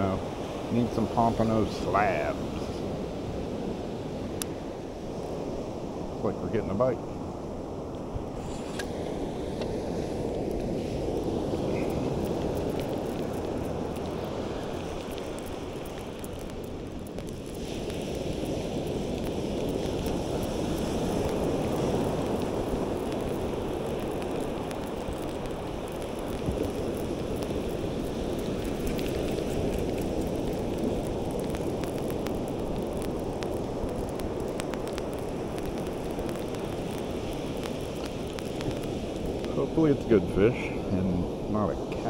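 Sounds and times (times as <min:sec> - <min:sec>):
surf washing up a beach: 0:00.0 - 0:42.0
wind buffeting microphone: 0:00.0 - 0:42.0
faint clicks: 0:28.3 - 0:39.5.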